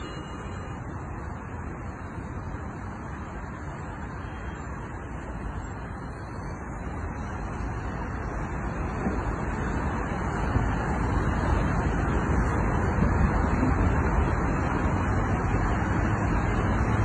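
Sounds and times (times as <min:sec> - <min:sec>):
highway traffic rushing: 0:00.0 - 0:17.0.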